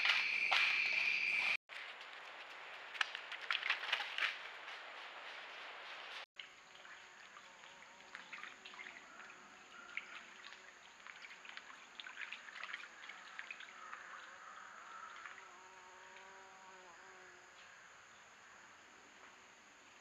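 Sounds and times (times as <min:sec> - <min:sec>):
deer splashing through creek: 0:02.6 - 0:15.5.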